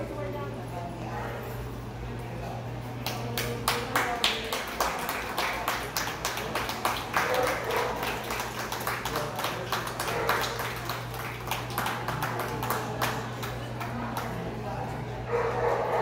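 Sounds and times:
ventilation fans humming: 0.0 - 16.0
hand clapping: 3.0 - 14.4.

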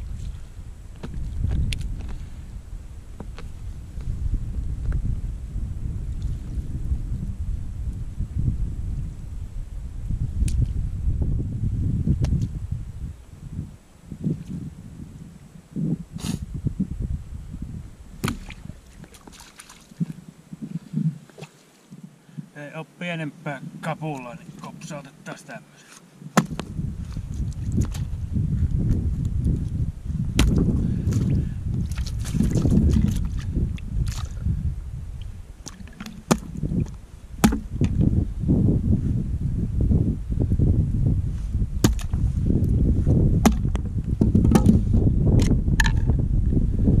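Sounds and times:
low rumbling noise: 0.0 - 18.8, 26.3 - 47.0
wooden club striking fish: 18.2 - 18.6, 26.4 - 26.7, 30.4 - 30.6, 35.7 - 36.6, 37.4 - 38.0, 41.8 - 42.2, 43.4 - 44.8, 45.4 - 46.1
water splashing and dripping: 18.2 - 20.2
wet net hauled from water: 18.3 - 20.2.

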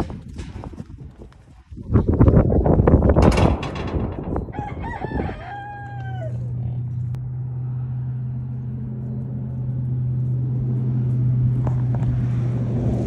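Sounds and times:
steady low hum: 3.0 - 13.0
rooster crowing: 4.4 - 6.9.

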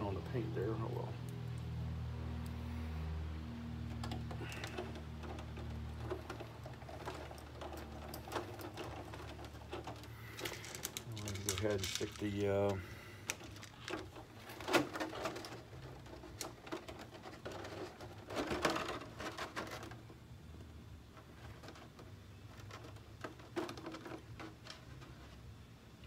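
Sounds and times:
plastic knocks and rustles: 3.9 - 25.4.

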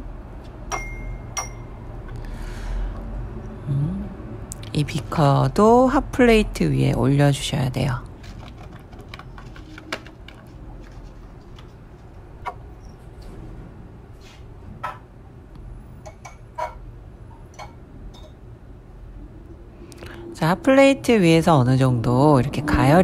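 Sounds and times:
low steady hum: 0.0 - 23.0
glassware clicking: 0.7 - 1.6
plastic bag handled: 8.2 - 12.1.

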